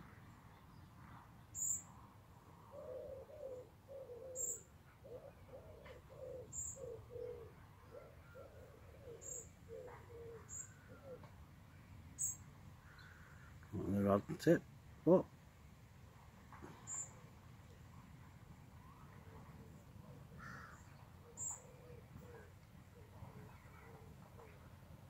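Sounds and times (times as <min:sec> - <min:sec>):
small bird chirping: 0:01.5 - 0:01.9, 0:04.2 - 0:04.7, 0:06.2 - 0:07.5, 0:09.1 - 0:11.2, 0:12.2 - 0:13.2, 0:16.8 - 0:17.2
pigeon cooing: 0:02.6 - 0:11.4, 0:19.2 - 0:24.7.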